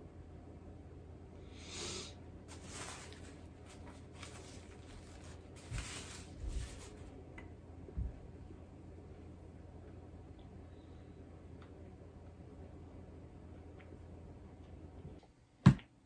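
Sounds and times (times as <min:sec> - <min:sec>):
paper napkin rustling: 0:02.5 - 0:07.2.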